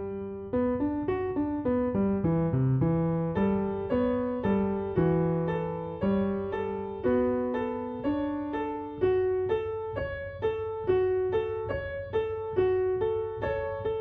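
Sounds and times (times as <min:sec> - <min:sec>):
calm solo piano piece: 0:00.0 - 0:14.0.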